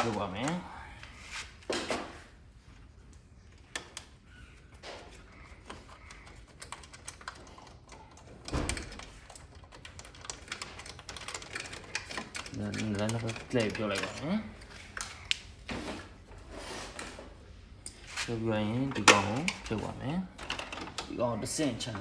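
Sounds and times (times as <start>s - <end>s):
parts clicking and knocking: 1.7s - 15.5s, 18.8s - 22.0s.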